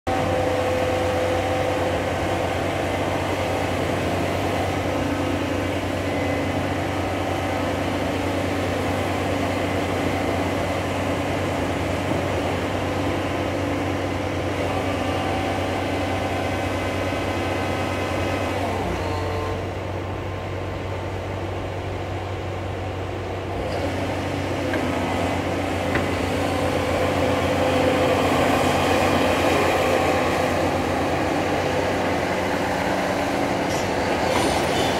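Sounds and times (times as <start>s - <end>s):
hydraulic whine: 0.1s - 20.2s
excavator diesel engine running: 0.1s - 34.9s.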